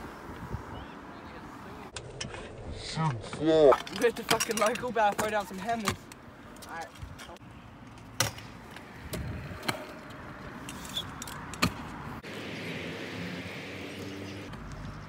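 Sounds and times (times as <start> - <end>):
scooter rolling on concrete: 0.0 - 15.0
scooter clacking on ground: 3.3 - 12.0.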